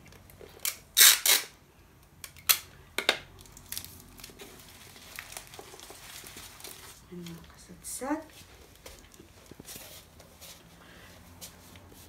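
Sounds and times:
plastic sheeting crinkling: 0:03.4 - 0:10.6.

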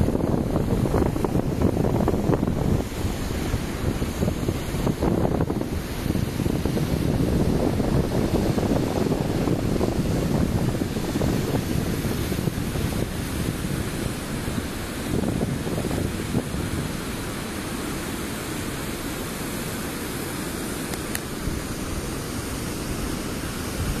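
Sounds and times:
waterfall rushing: 0:00.0 - 0:24.0.

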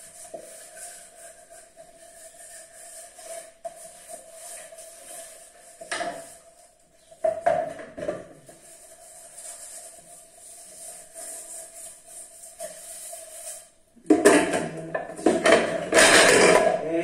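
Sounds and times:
metal cookware clattering: 0:14.1 - 0:16.9.

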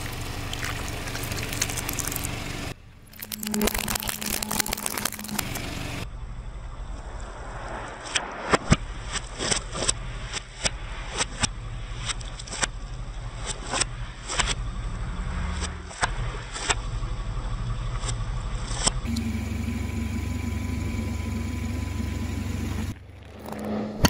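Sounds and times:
car engine running low: 0:00.0 - 0:07.5, 0:12.9 - 0:24.0
tyre crushing plastic toys: 0:03.1 - 0:05.6.

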